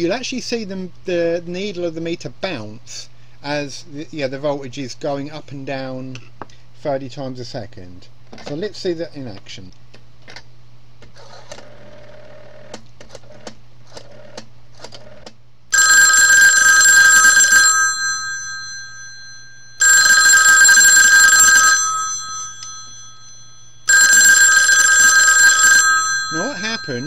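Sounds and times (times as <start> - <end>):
telephone bell ringing: 15.7 - 27.0.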